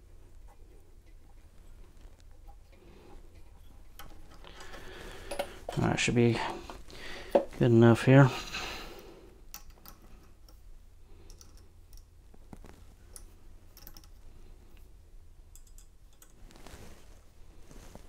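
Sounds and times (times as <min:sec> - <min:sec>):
small metal clicks and taps: 0:11.2 - 0:12.1, 0:13.1 - 0:14.2.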